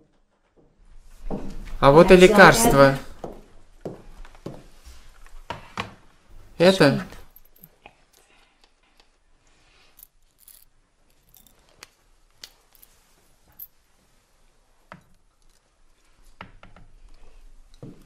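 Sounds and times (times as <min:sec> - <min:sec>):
soft rustling: 0:04.0 - 0:05.5.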